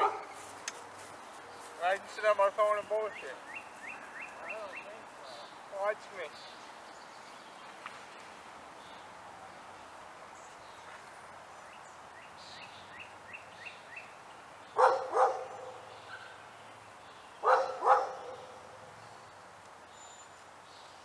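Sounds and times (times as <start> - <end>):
dog barking: 0.0 - 0.3, 14.8 - 16.4, 17.4 - 18.7
bird chirping: 0.0 - 8.0, 8.8 - 21.0.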